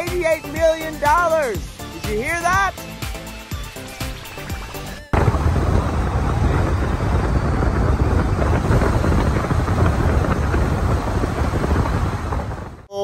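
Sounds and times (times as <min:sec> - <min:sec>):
road noise: 0:01.6 - 0:12.9
wind buffeting microphone: 0:04.4 - 0:12.9.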